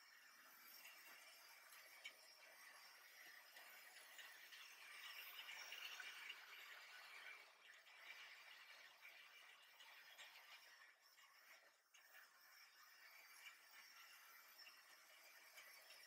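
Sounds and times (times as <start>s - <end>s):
model train rattling on track: 0.6s - 8.8s.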